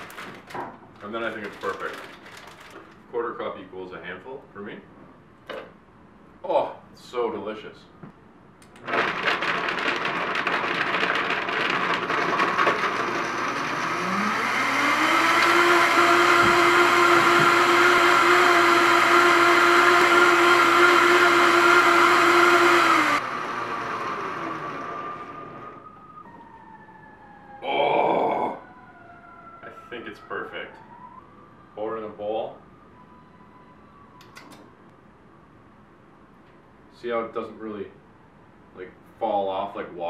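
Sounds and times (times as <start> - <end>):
blender motor whining: 8.8 - 25.8.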